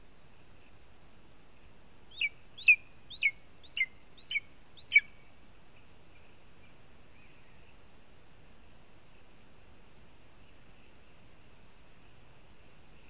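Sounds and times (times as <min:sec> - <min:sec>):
eagle yelping calls: 0:02.1 - 0:05.1.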